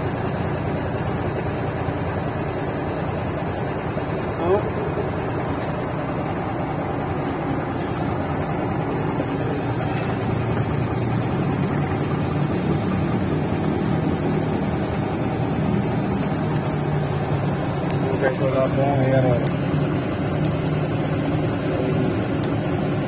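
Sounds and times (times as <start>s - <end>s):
diesel engine idling: 0.0s - 23.0s
short high hiss: 7.8s - 10.2s.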